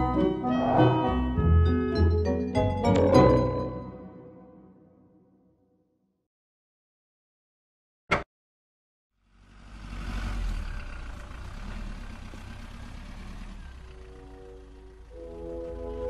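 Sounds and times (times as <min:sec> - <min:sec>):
music: 0:00.0 - 0:06.1, 0:14.0 - 0:16.0.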